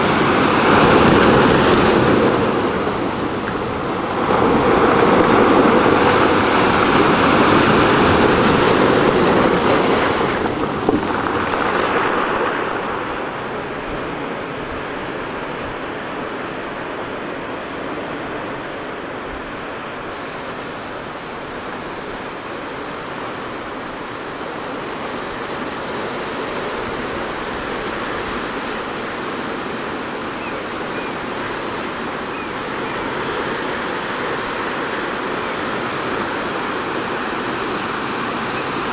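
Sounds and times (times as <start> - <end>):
distant surf: 0.0 - 38.9
surf washing over pebbles: 0.0 - 38.9
wind rushing: 1.1 - 14.4.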